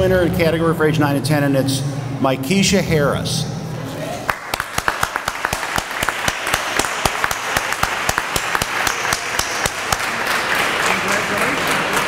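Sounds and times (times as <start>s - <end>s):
audience applauding: 4.2s - 12.0s.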